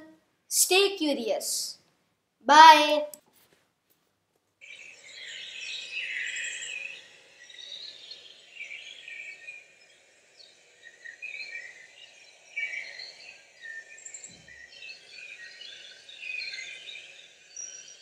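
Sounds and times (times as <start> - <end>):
faint outdoor hiss: 0.0 - 3.4, 4.2 - 18.0
birds chirping and twittering: 4.6 - 18.0.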